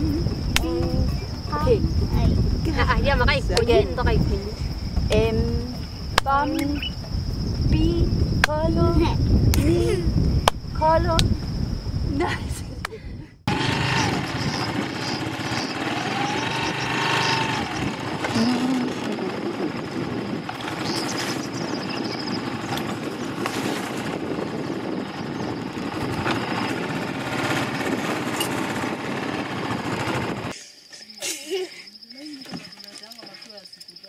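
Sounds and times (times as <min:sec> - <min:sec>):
motorcycle engine revving: 0:13.5 - 0:23.4, 0:24.3 - 0:30.5.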